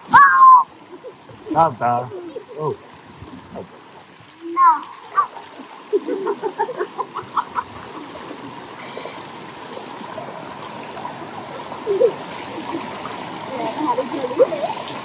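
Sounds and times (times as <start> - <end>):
water flowing and splashing: 0.0 - 15.0
child's voice: 4.4 - 5.4.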